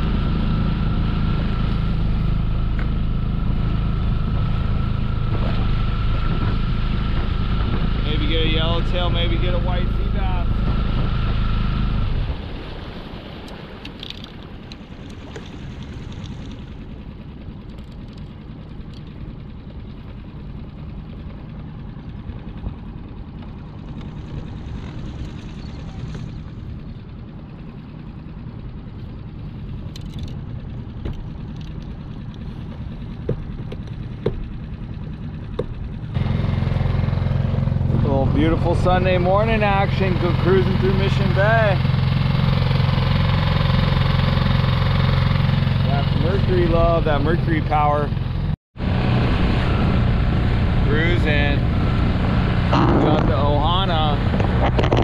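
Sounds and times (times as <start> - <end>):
outboard motor running: 0.0 - 55.0
light clicks and knocks: 31.0 - 35.8.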